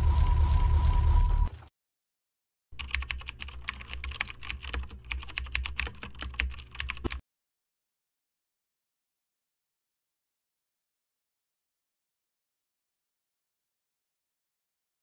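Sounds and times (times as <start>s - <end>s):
low rumbling tone: 0.0s - 1.6s
keyboard typing clicks: 2.8s - 7.2s.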